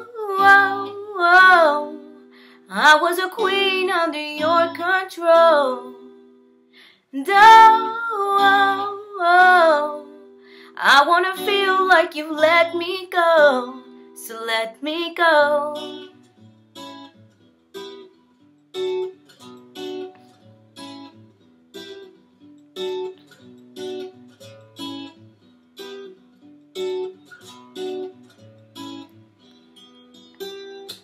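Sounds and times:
acoustic guitar strummed chords: 0.0s - 14.2s.

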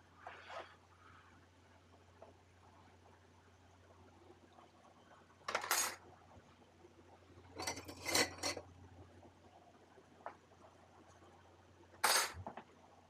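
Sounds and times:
dishes and cutlery clattering: 7.6s - 8.6s.

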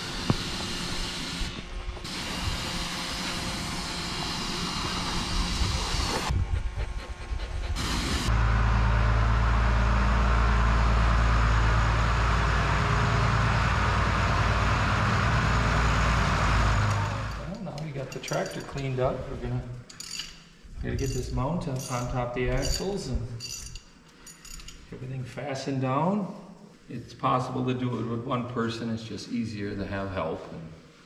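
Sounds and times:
tractor engine running: 7.8s - 18.0s.

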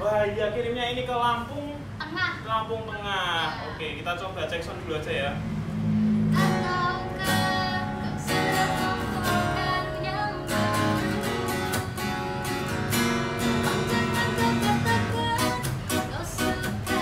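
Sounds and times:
acoustic guitar strumming: 5.8s - 17.0s
woman singing: 6.4s - 11.9s, 13.4s - 17.0s.

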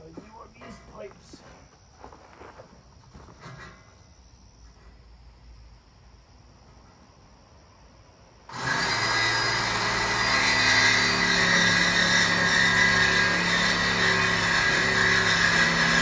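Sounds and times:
reciprocating saw cutting metal pipe: 8.5s - 16.0s.

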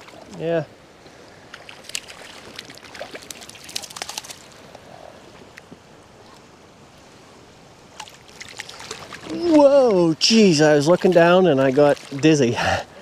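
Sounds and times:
river flowing: 0.0s - 13.0s
fish splashing at the surface: 1.6s - 4.6s.

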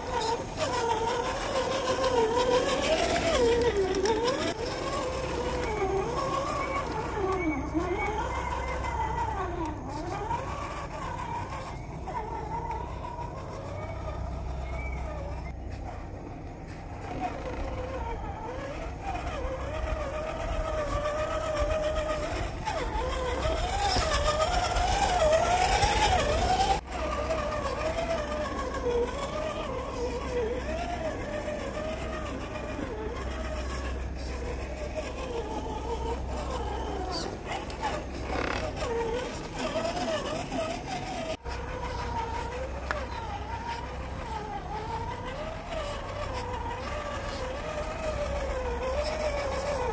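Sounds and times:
electric motor and gearbox whining: 0.0s - 49.9s.

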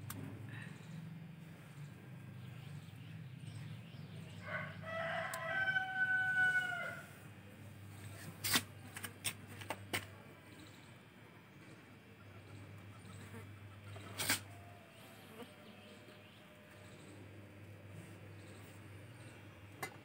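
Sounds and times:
rooster crowing: 4.4s - 7.2s
pruning shears snipping: 8.2s - 10.1s.

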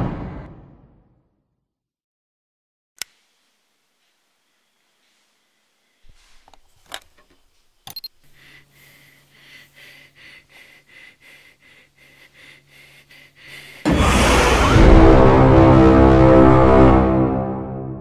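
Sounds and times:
faint hum and high tone: 7.4s - 10.1s
person breathing fast: 8.2s - 14.0s.

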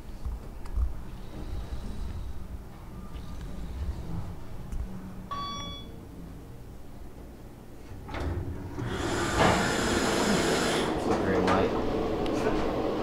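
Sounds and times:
elevator chime ding: 5.3s - 6.0s
elevator doors sliding open: 7.9s - 13.0s.

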